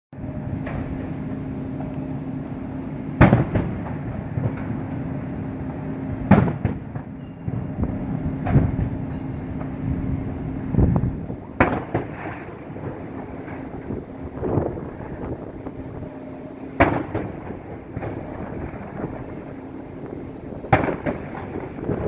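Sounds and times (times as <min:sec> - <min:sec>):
steady low hum: 0:00.1 - 0:22.0
firework shells booming: 0:03.2 - 0:04.8, 0:05.8 - 0:09.8, 0:11.3 - 0:16.0, 0:16.6 - 0:22.0
small firework cracks: 0:11.6 - 0:13.8, 0:20.7 - 0:22.0.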